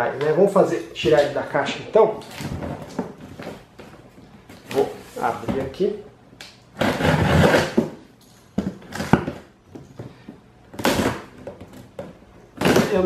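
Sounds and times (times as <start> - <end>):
packing tape ripping: 6.8 - 8.0, 10.8 - 11.8, 12.6 - 13.0.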